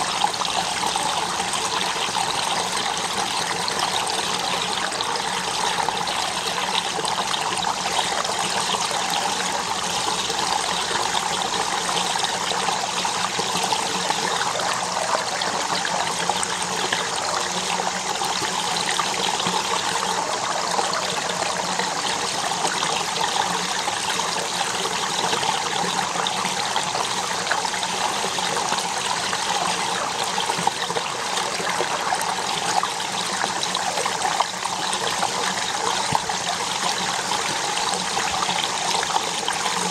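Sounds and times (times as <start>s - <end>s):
stream trickling over sand: 0.0s - 39.9s.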